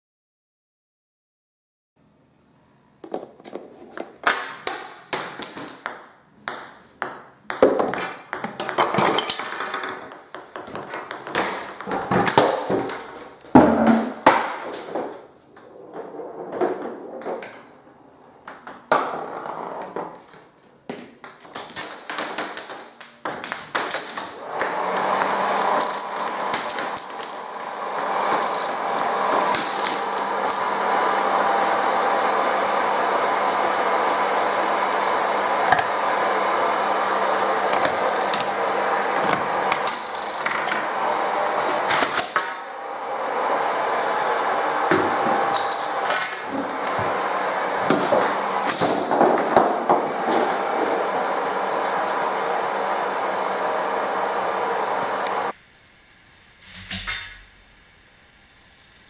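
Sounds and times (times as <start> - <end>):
balls rolling rumble: 7.6 - 20.3, 44.4 - 54.4.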